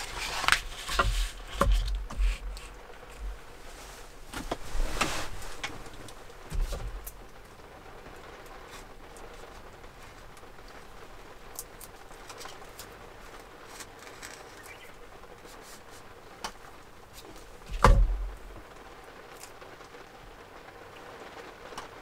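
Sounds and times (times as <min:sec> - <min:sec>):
heavy rain pattering: 0:00.0 - 0:22.0
dull thump: 0:06.5 - 0:07.0, 0:17.6 - 0:18.4.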